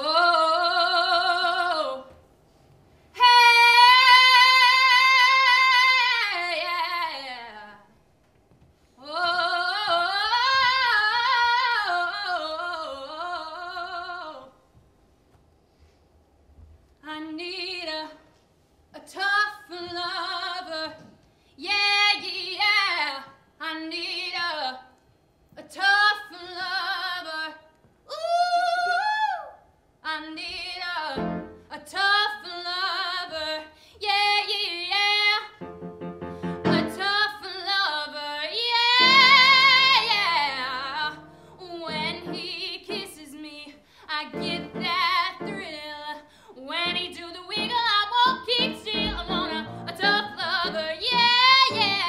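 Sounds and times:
woman singing with vibrato: 0.0 - 2.2, 3.2 - 7.8, 9.0 - 14.5, 36.5 - 52.0.

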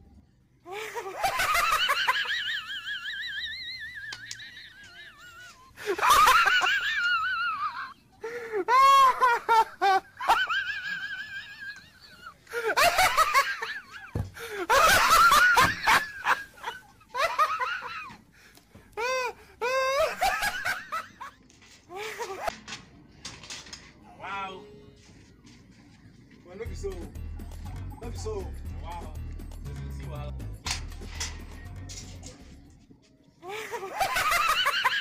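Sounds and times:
loud human laughter: 0.7 - 18.2, 19.0 - 22.5, 33.4 - 35.0.

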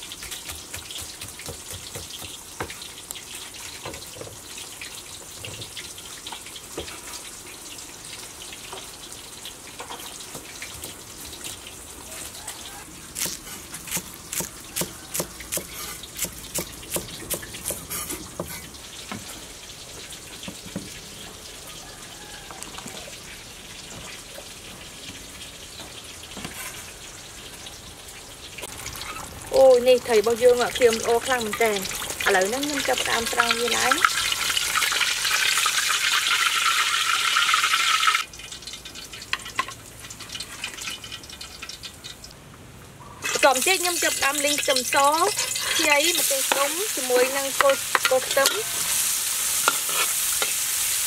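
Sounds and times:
fish sizzling in oil: 0.0 - 42.4, 43.2 - 51.0
cleaver chopping on wooden board: 13.2 - 17.8.

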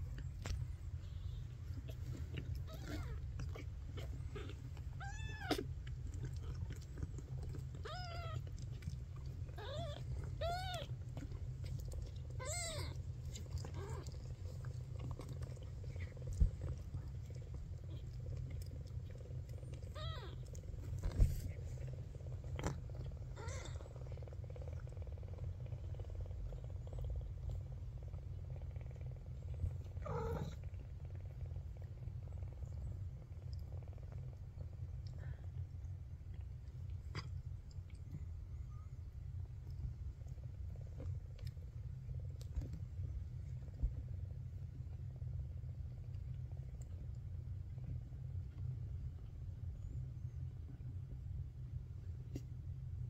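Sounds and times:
low purr: 0.0 - 53.0
kittens mewing: 1.8 - 5.8, 9.6 - 11.0, 12.4 - 13.0.

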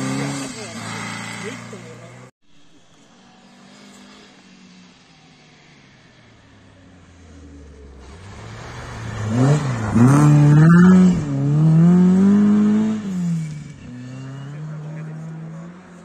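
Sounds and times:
rally car engine revving: 0.0 - 2.3, 7.2 - 16.0.

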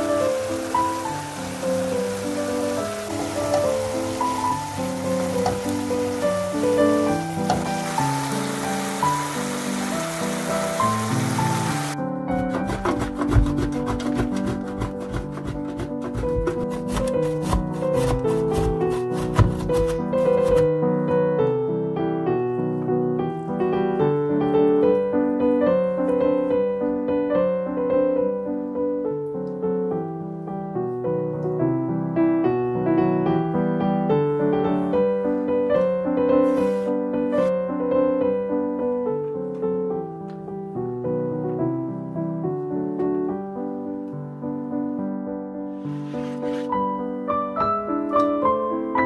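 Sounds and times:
piano music: 0.0 - 49.0
cheese scraping on grater: 12.3 - 20.7, 45.7 - 46.8.

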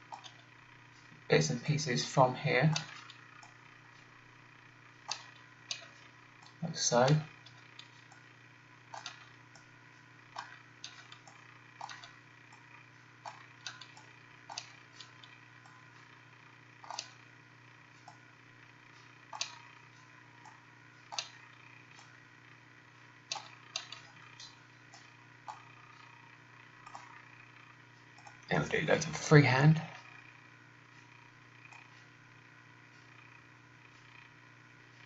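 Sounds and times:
faint steady hum: 0.0 - 35.0
mouse and keyboard clicks: 0.1 - 0.4, 2.7 - 3.6, 5.1 - 6.6, 8.9 - 9.4, 10.4 - 12.2, 13.3 - 15.8, 16.8 - 17.2, 19.4 - 19.7, 20.5 - 21.4, 23.3 - 25.7.

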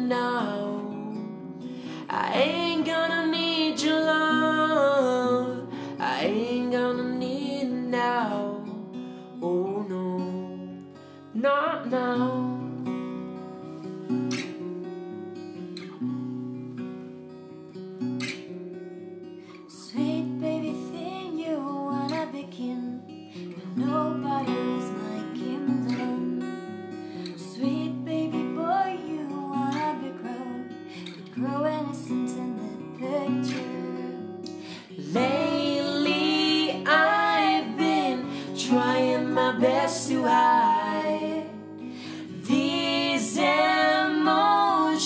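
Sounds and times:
acoustic guitar strumming: 0.0 - 19.3, 33.1 - 45.0
wordless vocal melody: 33.3 - 45.0.

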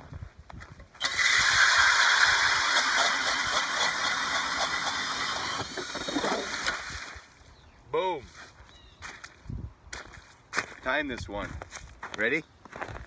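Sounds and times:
drill spinning ice auger: 1.0 - 7.0.

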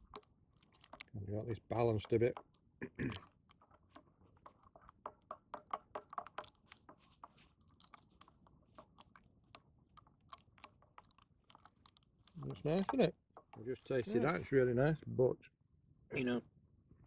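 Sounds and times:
spoon stirring in a metal cup: 3.5 - 14.0.

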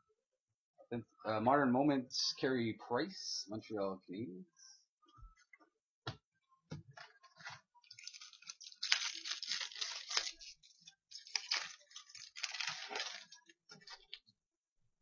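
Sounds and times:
foil wrapper crinkling: 7.8 - 14.2.

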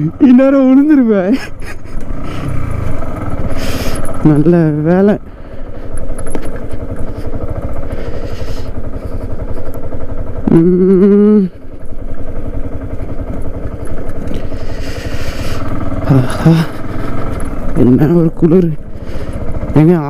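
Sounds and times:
motorcycle engine running: 0.0 - 20.0
person's drawn-out vocal sound: 10.4 - 11.5, 16.0 - 16.8.

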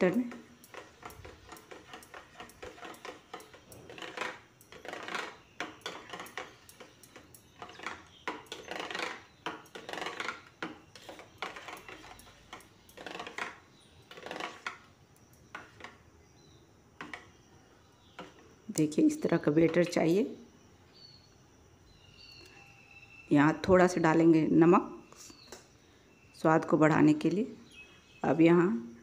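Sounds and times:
spoon scraping steel bowl: 0.0 - 14.9.

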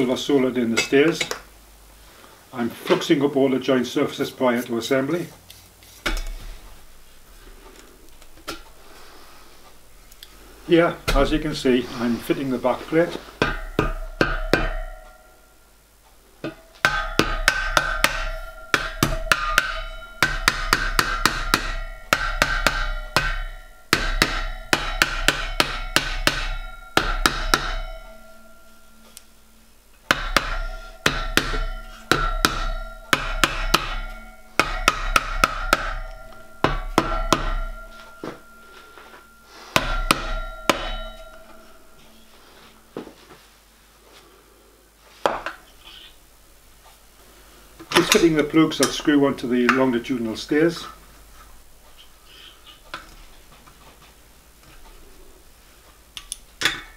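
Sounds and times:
mallet tapping ringing copper: 13.4 - 15.7, 16.4 - 43.2.

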